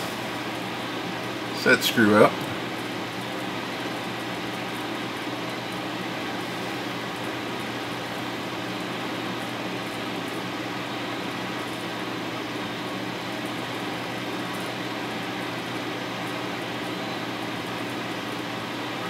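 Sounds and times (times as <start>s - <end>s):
fan whirring hum: 0.0s - 19.0s.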